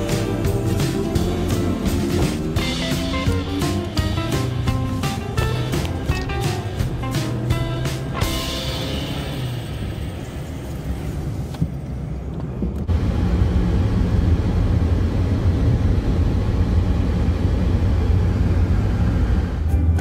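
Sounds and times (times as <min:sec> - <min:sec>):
car road and engine hum: 0:00.0 - 0:20.0
wind rumbling through car window: 0:10.2 - 0:19.6.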